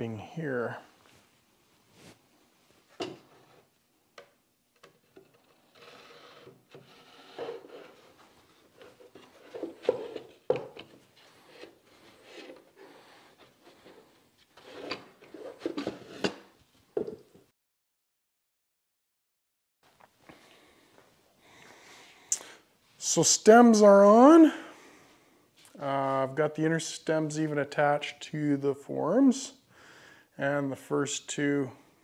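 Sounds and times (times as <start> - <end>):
wooden boards sliding and rubbing: 5.0 - 16.6.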